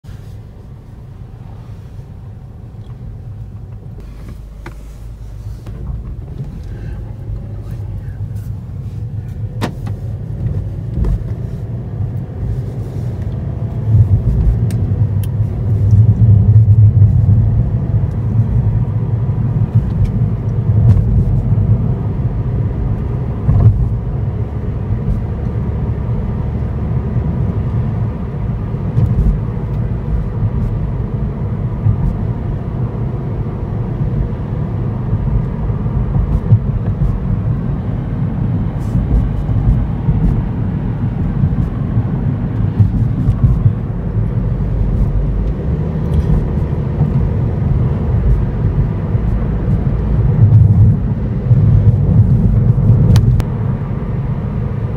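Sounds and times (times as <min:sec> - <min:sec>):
car engine and road rumble: 0:00.0 - 0:54.9.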